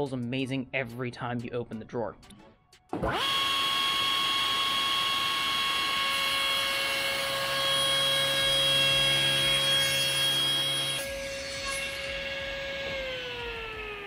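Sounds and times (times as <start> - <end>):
saw blade cutting board: 3.0 - 14.0
table saw motor whine: 3.0 - 14.0.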